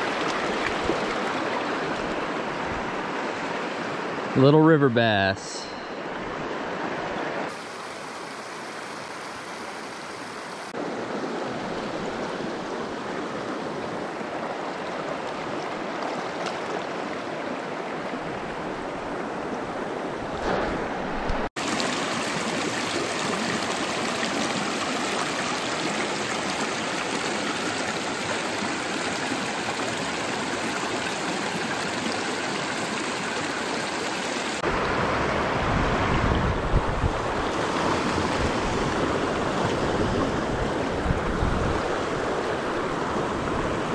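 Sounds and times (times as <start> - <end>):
river rushing over rocks: 20.4 - 43.9.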